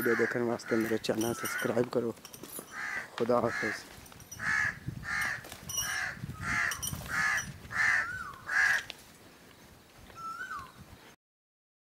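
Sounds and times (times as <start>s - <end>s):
crow cawing: 0.0s - 1.8s, 2.7s - 8.9s.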